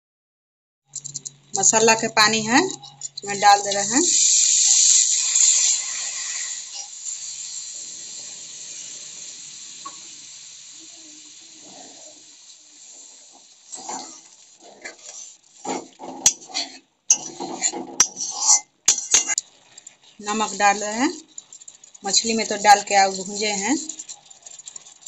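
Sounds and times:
metal spatula scraping a pan: 0:01.0 - 0:07.6, 0:11.6 - 0:25.0
paste sizzling in hot oil: 0:01.0 - 0:25.0.

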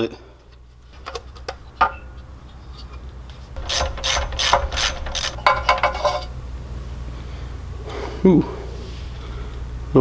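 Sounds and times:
socket ratchet clicking: 0:03.6 - 0:06.0.

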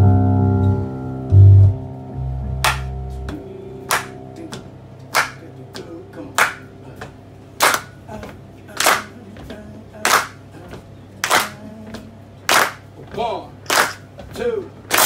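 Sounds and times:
held guitar and bass notes: 0:00.0 - 0:08.8
hand claps: 0:02.6 - 0:12.9, 0:13.6 - 0:14.1.

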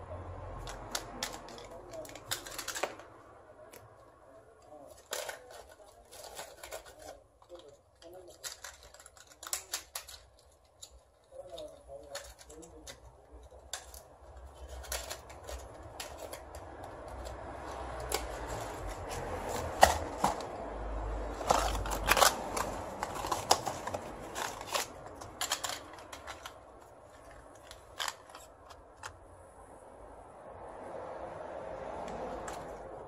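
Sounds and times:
sharp clicks and clatters: 0:00.6 - 0:20.7, 0:21.3 - 0:29.2
rustling: 0:03.7 - 0:20.7, 0:21.3 - 0:29.2.

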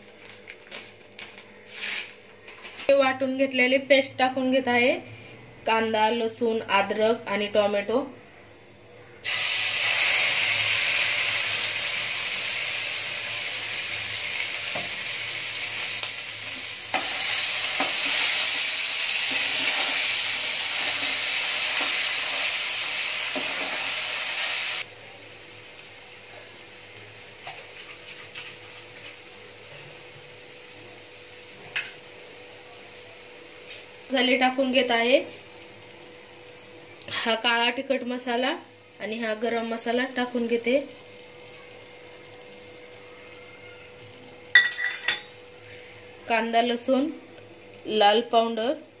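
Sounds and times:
paste sizzling in hot oil: 0:09.2 - 0:29.4.

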